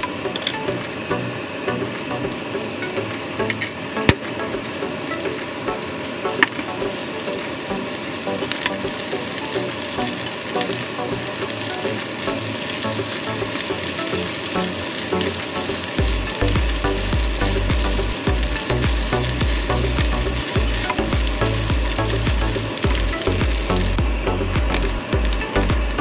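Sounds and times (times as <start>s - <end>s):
meat sizzling in hot oil: 0.0s - 26.0s.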